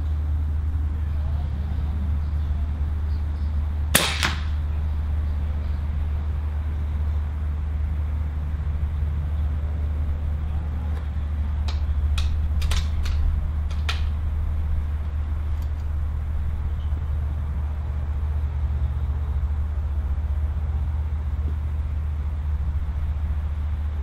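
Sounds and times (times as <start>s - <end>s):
steady low rumble: 0.0s - 24.0s
air rifle shot crack: 3.9s - 4.6s
metallic clicks of rifle action: 11.7s - 14.1s.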